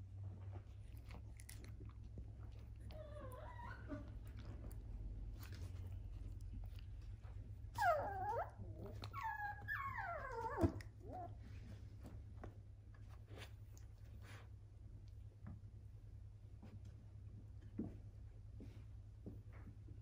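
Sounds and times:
low steady hum: 0.0 - 20.0
dog whimpering: 2.8 - 4.5, 7.7 - 11.4.

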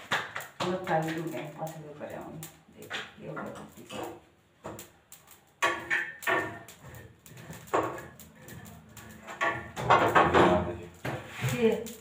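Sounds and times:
spatula knocking on iron griddle: 5.6 - 8.2, 9.1 - 11.4.

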